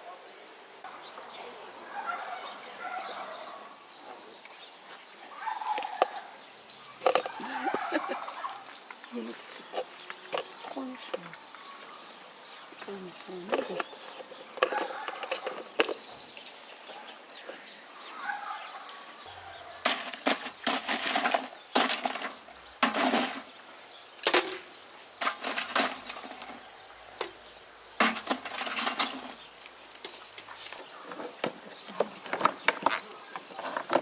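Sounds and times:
charcoal clattering in metal buckets: 13.3s - 16.2s, 19.8s - 34.0s.

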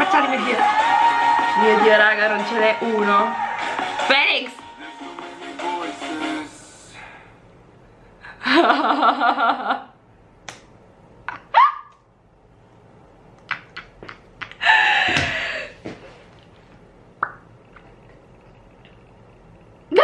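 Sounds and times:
woman laughing and squealing: 11.5s - 11.9s.

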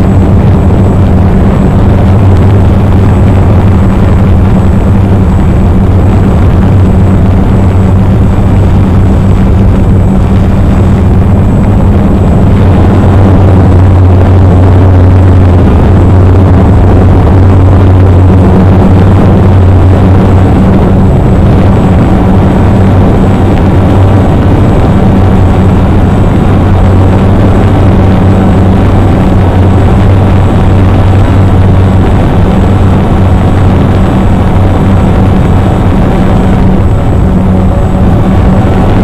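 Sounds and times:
drone motors and propellers: 0.0s - 39.0s.

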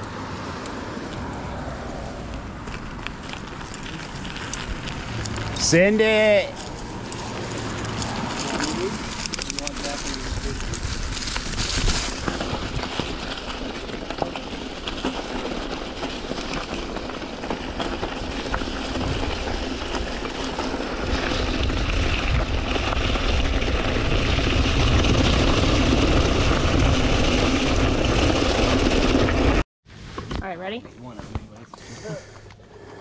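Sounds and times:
wind rushing over microphone: 0.0s - 13.7s, 18.3s - 29.6s
bike tyre and frame rattle: 2.0s - 30.4s.

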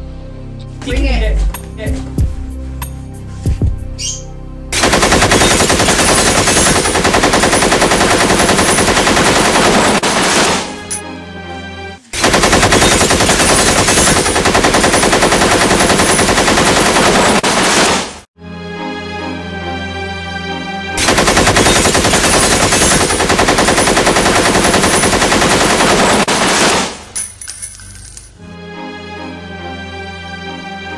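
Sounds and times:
machine-gun bursts: 4.8s - 10.8s, 12.2s - 18.2s, 21.0s - 27.1s.

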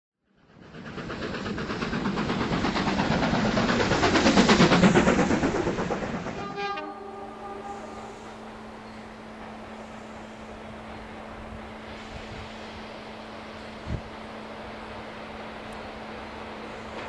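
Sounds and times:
train clattering past: 0.3s - 17.0s
low hum: 0.4s - 10.6s
horn-like chord: 6.4s - 9.2s.

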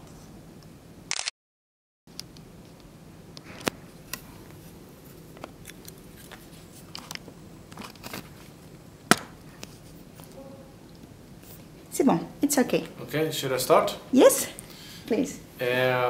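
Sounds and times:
low steady hum: 2.1s - 16.0s.

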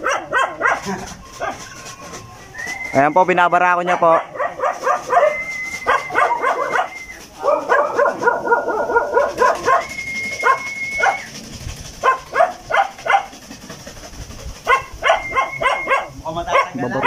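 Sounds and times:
dog barking: 0.0s - 1.7s, 3.9s - 11.3s, 12.0s - 13.4s, 14.6s - 17.0s.

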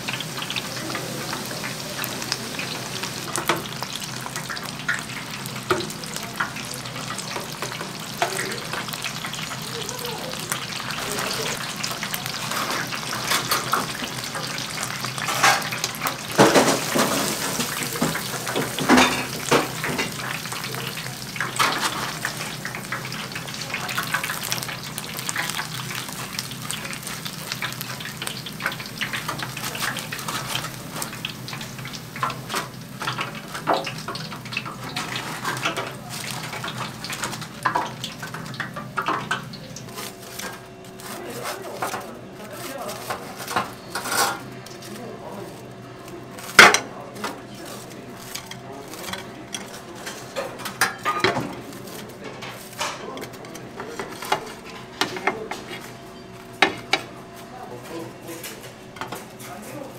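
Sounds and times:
oil sizzling in a deep fryer: 0.0s - 59.9s.

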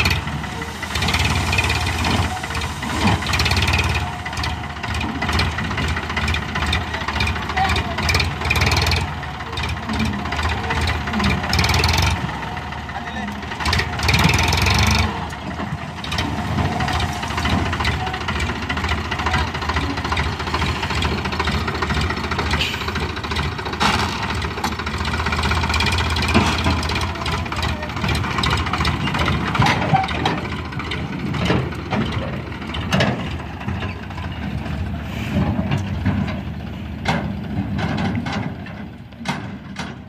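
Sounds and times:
tractor diesel engine running: 0.0s - 40.0s
trolley knocking and rattling: 35.5s - 40.0s.

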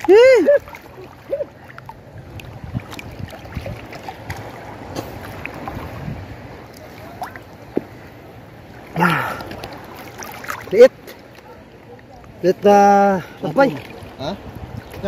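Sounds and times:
small splashes: 0.0s - 8.0s, 8.7s - 12.4s, 13.2s - 15.0s
sea water lapping and sloshing: 0.0s - 15.0s
wind on microphone: 2.1s - 4.4s, 5.2s - 6.6s, 14.1s - 15.0s.

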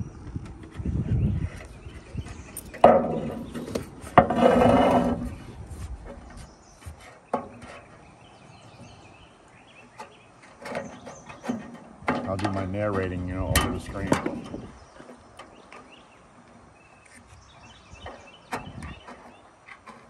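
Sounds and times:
metal scraping across wood: 0.4s - 20.0s
metal trim clattering on wood: 2.2s - 5.4s, 9.8s - 16.0s.

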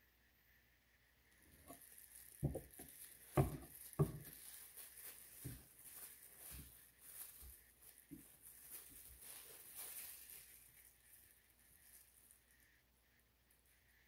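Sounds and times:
tools knocking on work table: 2.4s - 2.8s, 3.4s - 4.3s.

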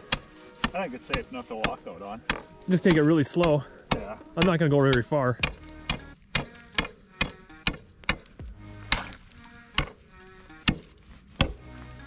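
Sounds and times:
ice bar striking ice: 2.3s - 10.0s.

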